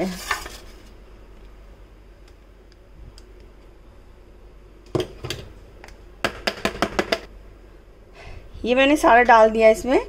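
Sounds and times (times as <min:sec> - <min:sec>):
spatula knocking metal bowl: 0:06.2 - 0:07.3.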